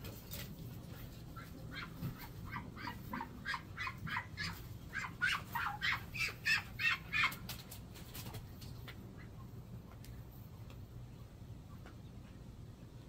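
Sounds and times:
poultry calling: 0.9s - 7.6s.

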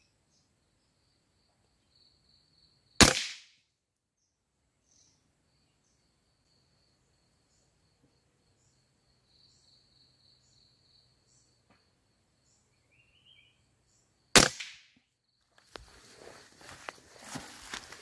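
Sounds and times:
rifle shot: 3.0s - 3.5s, 14.4s - 14.9s.

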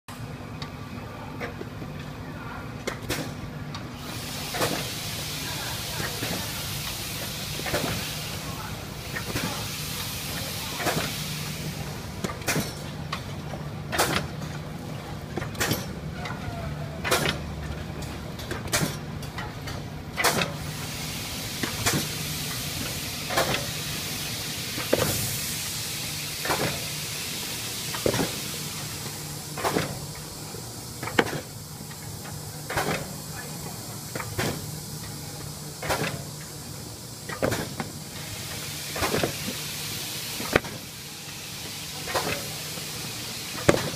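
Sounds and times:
hiss: 4.0s - 12.8s, 20.2s - 43.9s
machine mechanism clacking: 15.4s - 16.4s.

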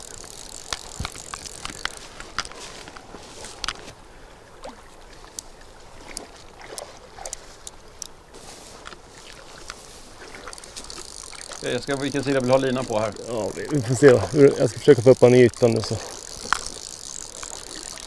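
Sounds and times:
sharp clicks: 0.0s - 3.0s
river water lapping and splashing: 0.0s - 18.0s.

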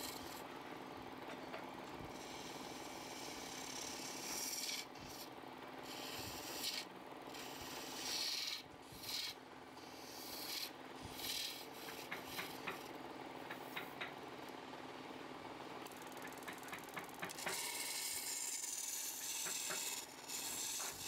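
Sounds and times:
lathe tool rasping on wood: 2.1s - 5.2s, 5.9s - 12.9s, 17.2s - 21.0s
wood lathe humming: 8.0s - 9.3s, 9.9s - 12.9s, 17.2s - 21.0s.

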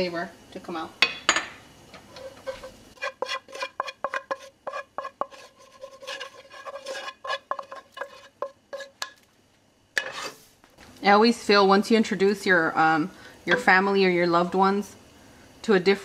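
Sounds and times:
wooden spoon tapping metal pan: 13.5s - 14.0s.

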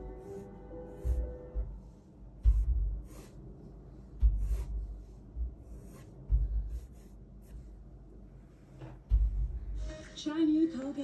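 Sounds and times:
pencil strokes on paper: 0.0s - 7.9s.

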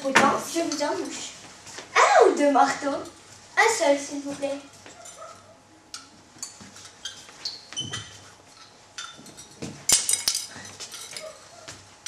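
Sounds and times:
teacups and spoons clinking: 8.6s - 11.4s.

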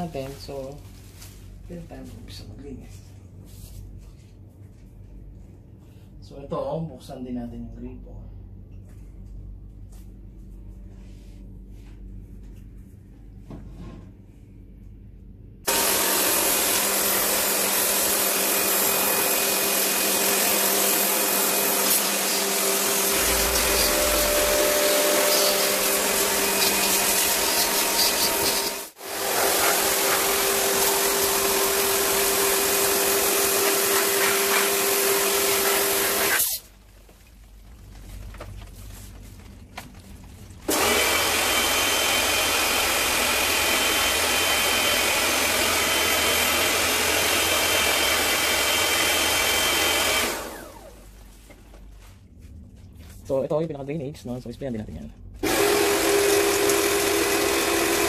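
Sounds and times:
pressure washer pump humming: 15.7s - 36.7s, 40.7s - 51.2s, 55.4s - 58.0s
water jet hissing: 23.1s - 31.4s, 33.9s - 34.8s.

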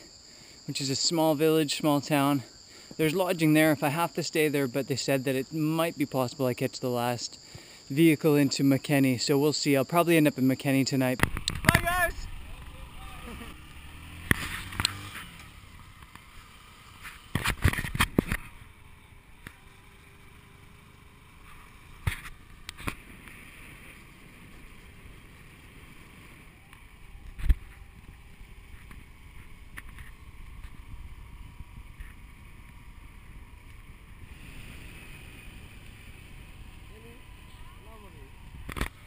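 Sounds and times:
road and wind noise: 0.0s - 39.0s
motorcycle engine hum: 10.9s - 39.0s.

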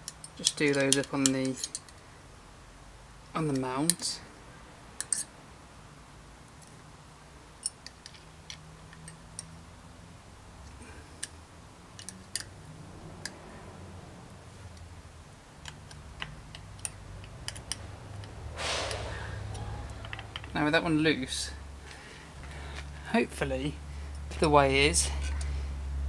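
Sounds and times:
allen key metallic clicks: 11.2s - 12.6s
brief rustle: 18.6s - 20.4s.

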